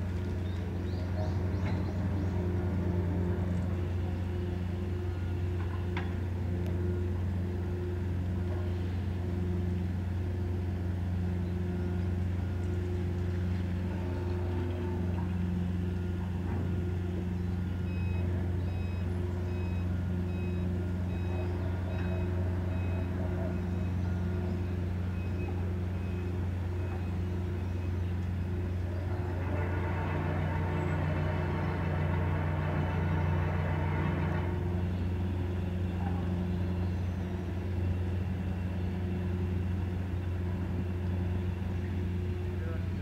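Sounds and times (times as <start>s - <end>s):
ship machinery humming: 0.0s - 43.0s
reversing alarm beeping: 15.4s - 28.7s.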